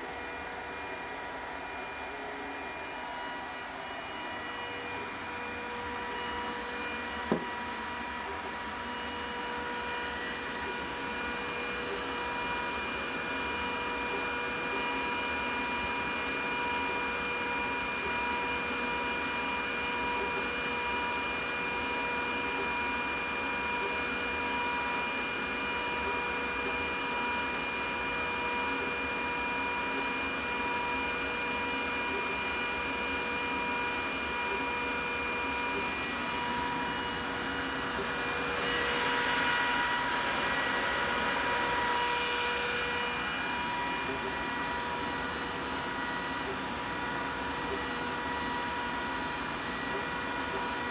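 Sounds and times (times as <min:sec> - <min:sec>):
cooling fans whining: 0:00.0 - 0:50.9
exhaust fan: 0:35.8 - 0:45.0.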